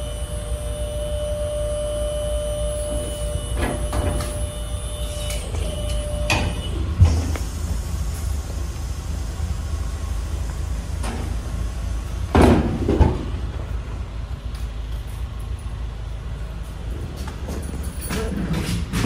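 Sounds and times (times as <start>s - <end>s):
steady low rumble: 4.5s - 19.0s
hand truck clattering: 17.0s - 19.0s.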